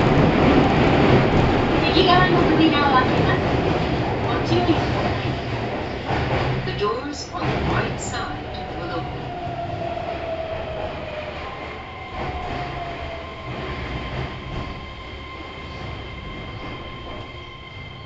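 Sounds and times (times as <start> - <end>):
train wheels rumbling: 0.0 - 18.0.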